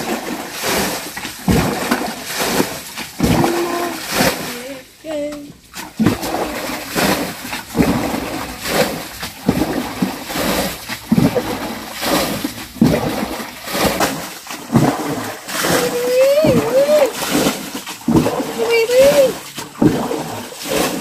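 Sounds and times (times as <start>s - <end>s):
water splashing rhythmically: 0.0s - 21.0s.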